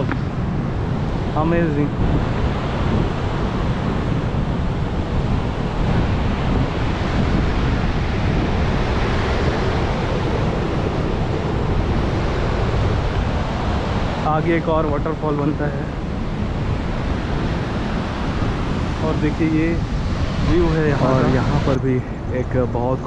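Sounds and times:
wind buffeting microphone: 0.0 - 23.0
waterfall roaring: 20.2 - 21.8.

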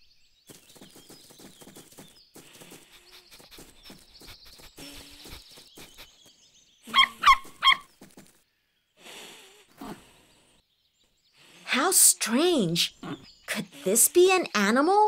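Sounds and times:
faint bird chirps: 0.0 - 15.0
cartoon puppy yapping: 6.9 - 7.9.

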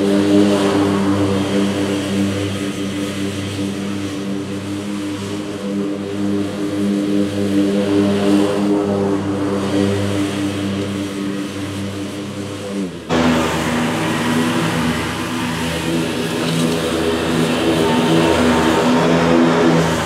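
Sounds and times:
lawn mower engine running: 0.0 - 20.0.

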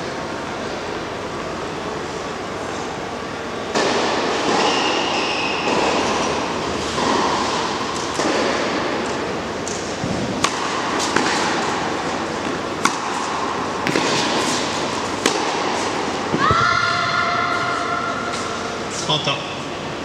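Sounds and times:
tennis ball struck by rackets: 5.6 - 16.6.

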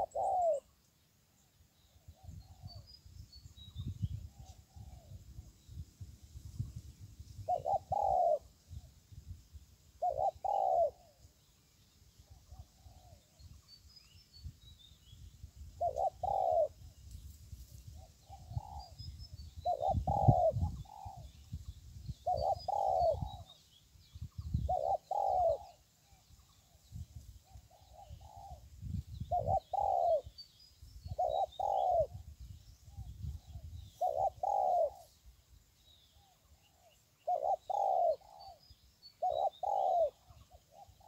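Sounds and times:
bird cooing: 0.0 - 0.8, 7.4 - 8.9, 10.0 - 11.2, 12.3 - 13.5, 15.8 - 16.9, 18.0 - 21.4, 22.2 - 23.6, 24.5 - 26.8, 27.4 - 30.4, 31.0 - 32.3, 33.0 - 35.2, 36.1 - 41.0
small birds chirping: 0.0 - 41.0.

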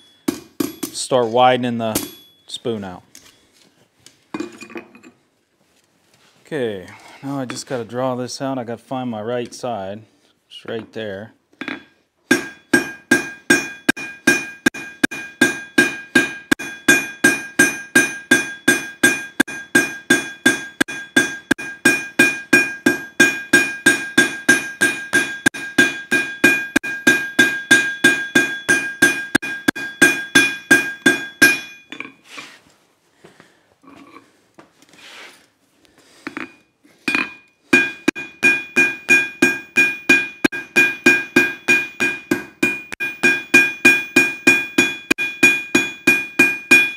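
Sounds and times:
hammer beating steel on anvil: 0.0 - 2.4, 11.6 - 32.0, 36.3 - 46.9
anvil ringing: 0.0 - 2.7, 11.6 - 32.1, 36.4 - 46.9.

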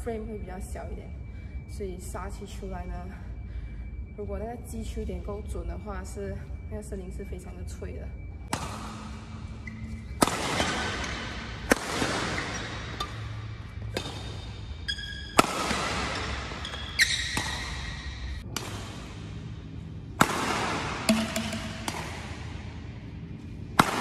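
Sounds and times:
racquet smashing shuttlecock: 15.3 - 16.4, 20.2 - 22.4.

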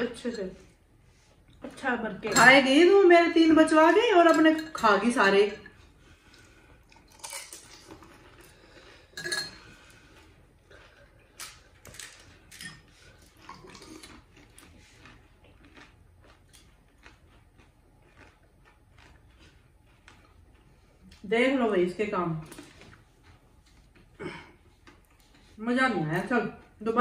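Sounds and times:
spoon clinking on glass bowls: 2.3 - 2.7, 4.2 - 5.7, 9.2 - 9.6.

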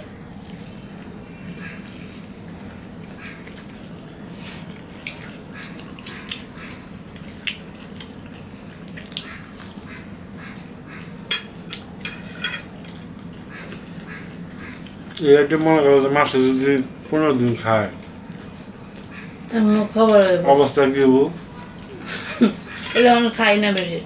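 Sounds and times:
person chewing food: 0.0 - 17.2, 17.9 - 19.5
steady low hum: 0.0 - 24.0.

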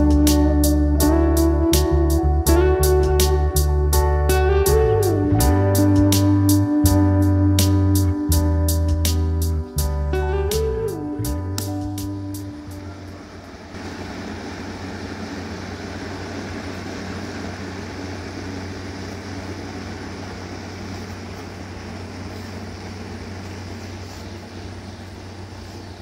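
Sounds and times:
rushing air from fan: 11.2 - 26.0.

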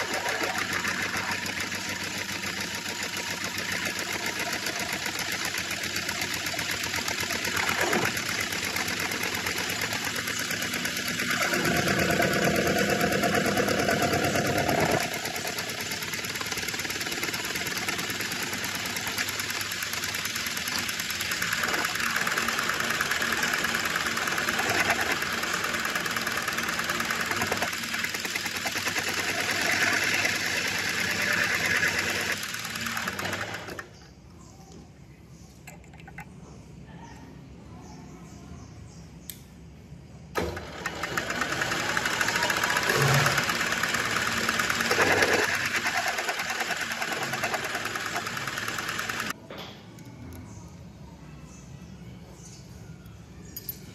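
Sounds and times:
metal-turning lathe running: 0.0 - 33.9, 40.4 - 49.4.

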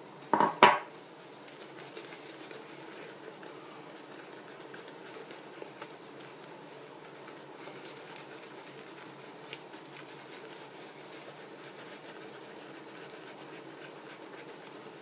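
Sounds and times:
shaving brush scratching on face: 0.9 - 15.0.

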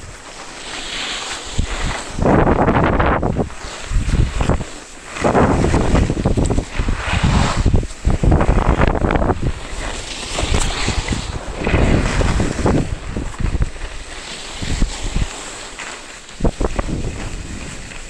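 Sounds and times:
skis hissing over snow: 0.0 - 18.0
wind buffeting microphone: 1.6 - 15.4, 16.3 - 18.0.

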